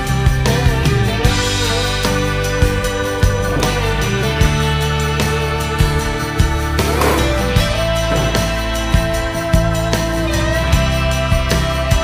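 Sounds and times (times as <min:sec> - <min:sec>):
guitar background music with beat: 0:00.0 - 0:12.0.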